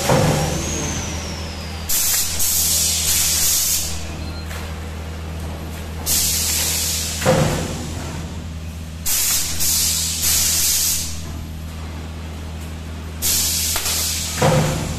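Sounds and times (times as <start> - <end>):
low machine hum: 0.0 - 14.9
compressed air hiss: 1.0 - 4.0, 6.1 - 7.2, 9.1 - 11.2, 13.2 - 14.4.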